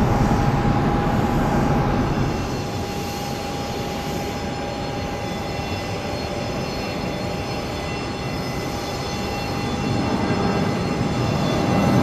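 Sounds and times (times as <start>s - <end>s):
jet engines rumbling: 0.0s - 5.1s
jet engine high whine: 0.0s - 12.0s.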